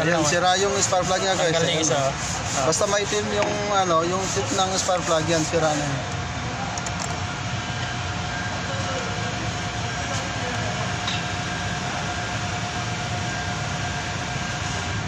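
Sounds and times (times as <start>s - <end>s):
faint constant whine: 0.0s - 15.0s
mechanical drone and hiss: 0.0s - 15.0s.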